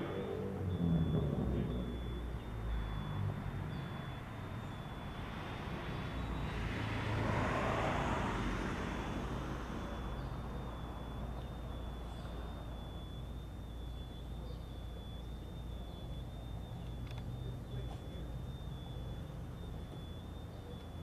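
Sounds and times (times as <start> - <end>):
vehicle passing by: 0.0 - 13.8
low traffic rumble: 0.0 - 21.0.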